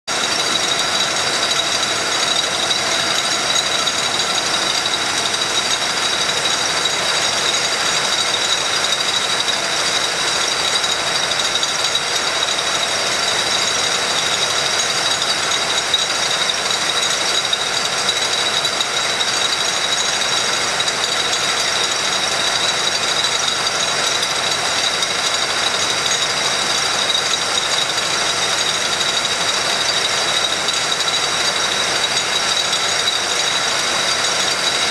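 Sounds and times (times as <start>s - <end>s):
machine high whine: 0.1s - 20.6s.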